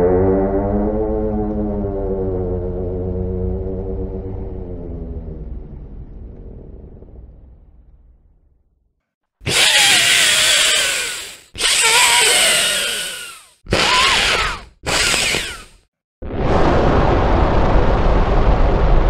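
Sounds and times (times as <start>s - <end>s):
low rumbling sound: 0.0s - 9.0s, 16.2s - 19.0s
creature raspy screeches: 9.4s - 15.7s.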